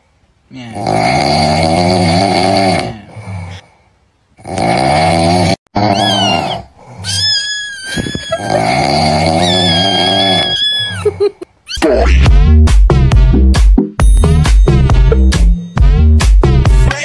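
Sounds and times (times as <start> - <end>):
comic snoring with whistle: 0.6 - 3.6, 4.4 - 7.2, 8.4 - 11.0
upbeat electronic music: 11.8 - 17.0.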